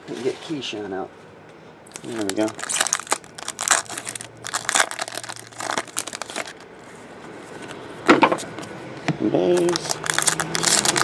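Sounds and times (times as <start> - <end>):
foil wrapper tearing and crinkling: 1.9 - 6.7, 9.6 - 11.0
cards rustling: 1.9 - 7.8, 9.6 - 11.0.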